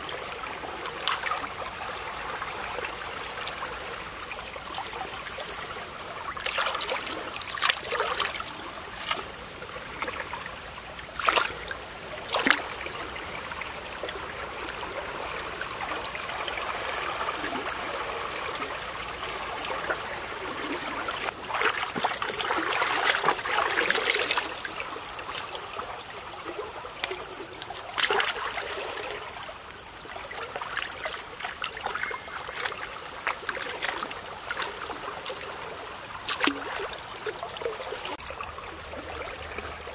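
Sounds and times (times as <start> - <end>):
hands splashing and sloshing water: 0.0 - 1.6, 6.2 - 10.4, 11.1 - 12.9, 20.5 - 25.6, 27.1 - 29.5, 30.2 - 39.9
stream running: 0.0 - 39.9.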